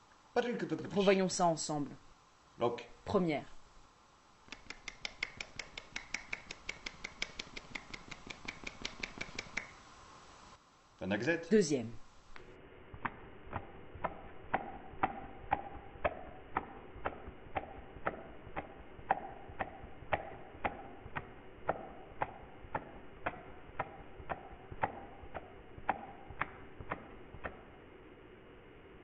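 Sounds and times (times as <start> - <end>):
hand slapping palm snaps: 4.5 - 9.8, 12.3 - 27.7.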